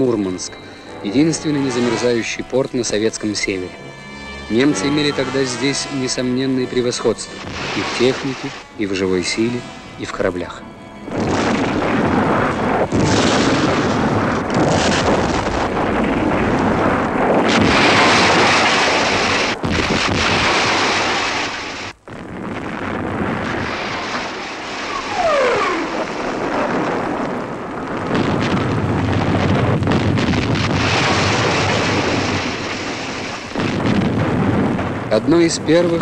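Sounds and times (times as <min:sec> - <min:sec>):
artillery fire and explosions: 0:06.9 - 0:09.5, 0:11.1 - 0:36.0.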